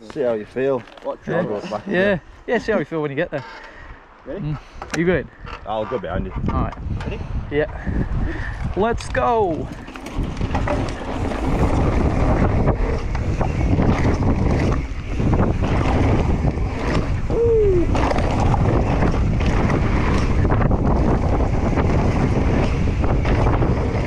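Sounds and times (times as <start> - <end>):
wind buffeting microphone: 4.3 - 24.0
bike tyres rumbling on gravel: 7.8 - 24.0
bike rattling and knocking: 8.5 - 24.0.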